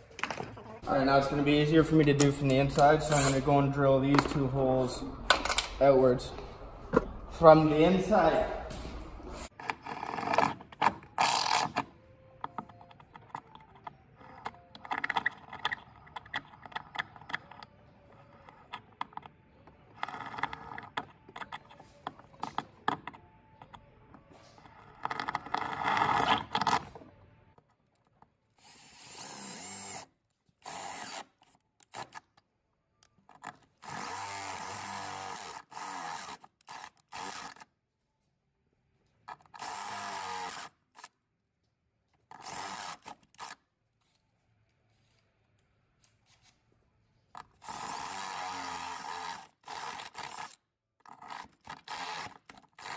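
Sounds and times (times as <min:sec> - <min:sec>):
tools knocking and clattering: 0:04.1 - 0:04.5, 0:05.2 - 0:05.8
cordless drill drilling metal: 0:30.6 - 0:31.3, 0:33.8 - 0:37.6, 0:39.6 - 0:41.1, 0:42.3 - 0:43.6, 0:47.6 - 0:50.6.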